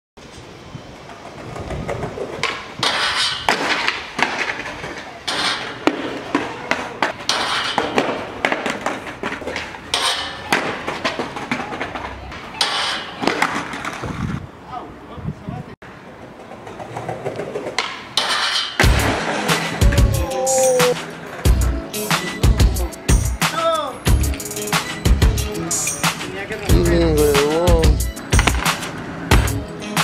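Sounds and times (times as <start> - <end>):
skateboard wheels rolling: 0.2 - 15.0, 15.8 - 30.0
skateboard grinding on metal rail: 1.0 - 14.3, 15.9 - 22.8, 28.2 - 30.0
people's voices: 19.4 - 21.6, 25.4 - 28.5.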